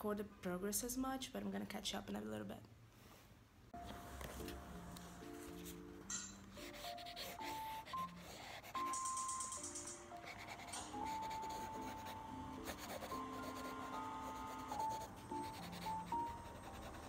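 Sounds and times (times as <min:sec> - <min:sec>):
soft music of held notes: 0:03.7 - 0:17.0
pencil scratching on paper: 0:06.5 - 0:09.0, 0:10.2 - 0:17.0.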